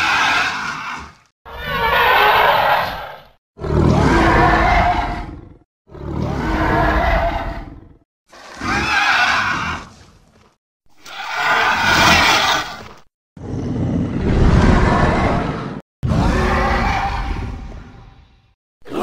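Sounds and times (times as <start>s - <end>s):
cartoon monster roars: 0.0s - 9.9s, 13.4s - 17.7s.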